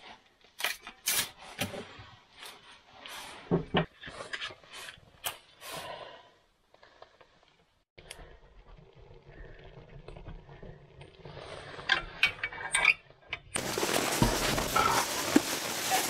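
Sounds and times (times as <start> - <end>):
paper and kindling rustling: 13.6 - 16.0.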